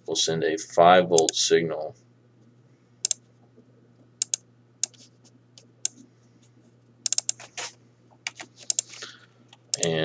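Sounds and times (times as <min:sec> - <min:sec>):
faint steady low hum: 0:00.0 - 0:10.0
computer keystrokes: 0:04.2 - 0:05.0, 0:07.1 - 0:07.4, 0:08.6 - 0:08.9, 0:09.7 - 0:09.9
mouse clicks: 0:04.2 - 0:05.0, 0:07.1 - 0:07.4, 0:08.7 - 0:08.9.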